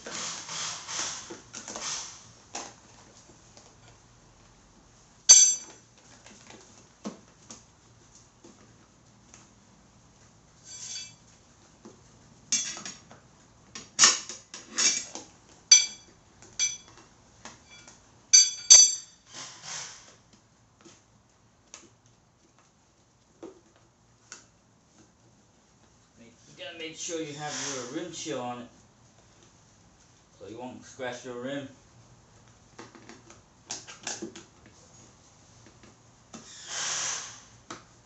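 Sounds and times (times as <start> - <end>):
tire levers clinking on wheel rim: 5.3 - 5.8, 15.7 - 17.0, 17.7 - 19.2.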